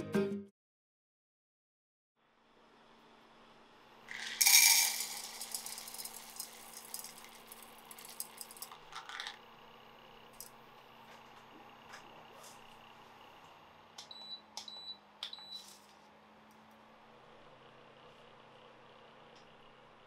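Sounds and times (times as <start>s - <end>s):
wax pellets clattering into dish: 4.1s - 9.4s.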